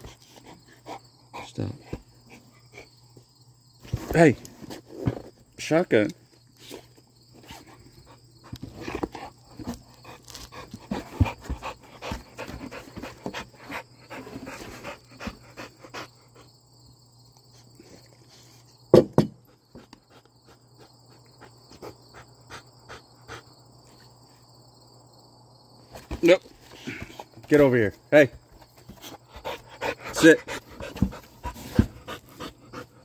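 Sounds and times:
dog panting: 0.0s - 3.0s, 7.5s - 16.5s, 19.7s - 23.6s, 28.9s - 33.0s
insects chirring: 0.0s - 33.0s.

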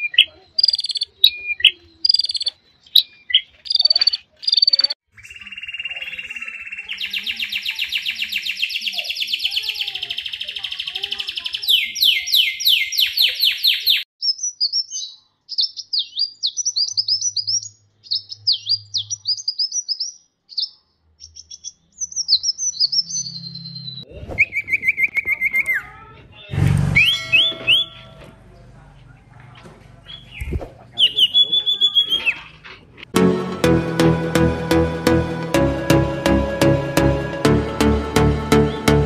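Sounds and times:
bird chirping: 0.0s - 29.2s, 30.0s - 32.6s
clear whistled bird note: 26.6s - 28.2s.

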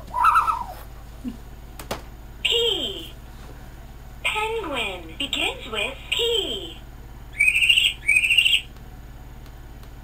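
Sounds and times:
owl-like hooting call: 0.0s - 0.9s, 7.3s - 8.7s.

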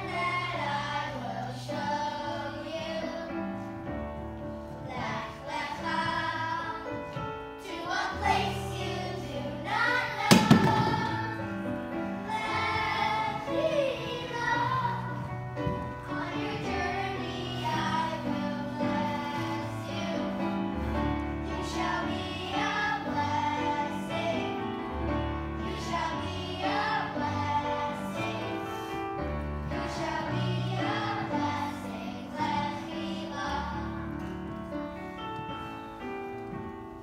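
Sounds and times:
song with singing voices: 4.7s - 20.6s.

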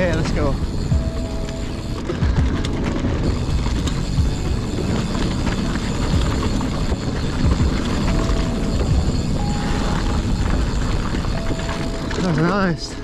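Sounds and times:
bike rattling: 0.0s - 13.0s
bike tyres rumbling on dirt: 0.0s - 13.0s.

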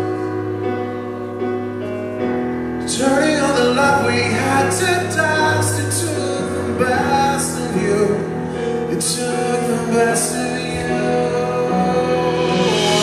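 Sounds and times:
man singing into microphone: 2.8s - 13.0s
sustained bass notes: 9.2s - 13.0s
rock band playing: 9.3s - 13.0s.

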